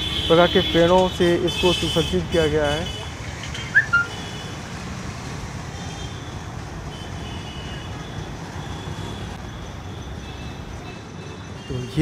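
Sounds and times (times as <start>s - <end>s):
distant city traffic rumble: 0.0s - 12.0s
high falling chirp: 3.7s - 4.2s.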